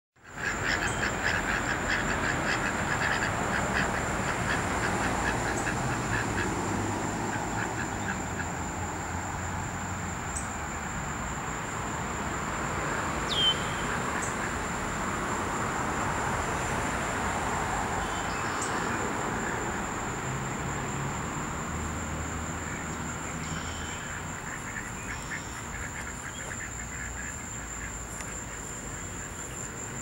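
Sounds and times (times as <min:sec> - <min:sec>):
ducks quacking: 0:00.3 - 0:08.6, 0:24.1 - 0:28.6.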